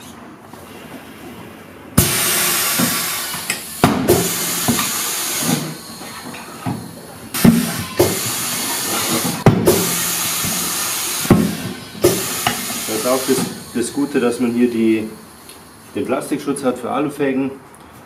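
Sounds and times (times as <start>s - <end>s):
compressed air hissing: 2.0s - 16.3s.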